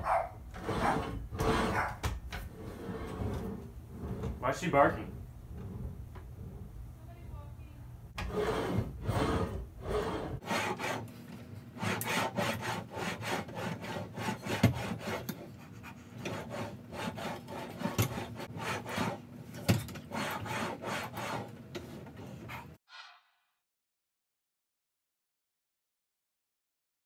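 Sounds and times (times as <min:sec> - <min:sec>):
exercise carriage sliding on rails: 0:00.1 - 0:06.8, 0:08.2 - 0:11.0.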